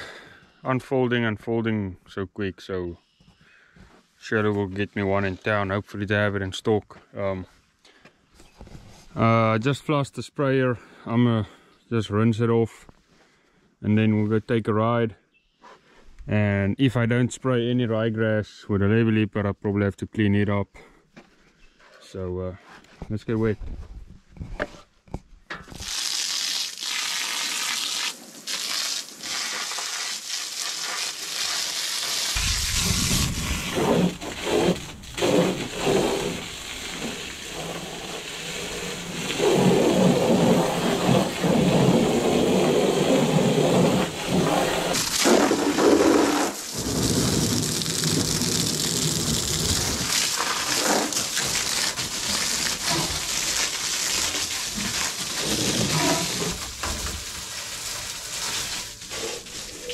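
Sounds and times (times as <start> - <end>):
water spray splashing on metal: 25.7 - 59.9.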